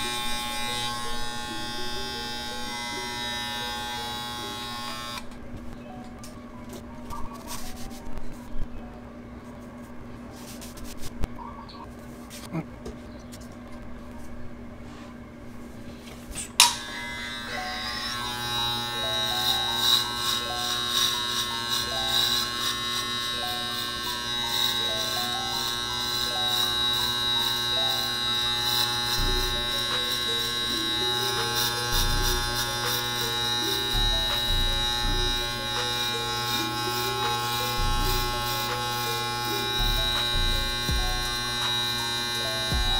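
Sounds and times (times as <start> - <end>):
hair clippers buzzing: 0.0 - 5.4, 16.5 - 42.9
hair clippers switch click: 16.6 - 17.0.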